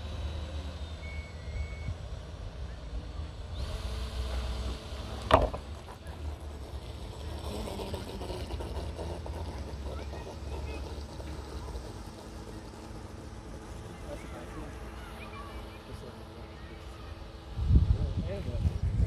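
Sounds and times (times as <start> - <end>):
faint distant voices: 0.1 - 19.0
wind rumbling on microphone: 17.4 - 19.0.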